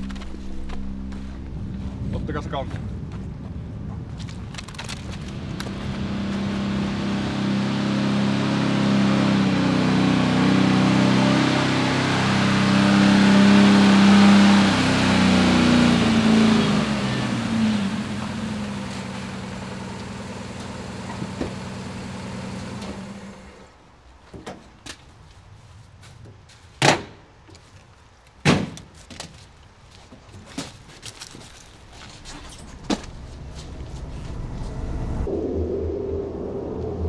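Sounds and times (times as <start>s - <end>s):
fire truck engine running: 32.0s - 35.3s.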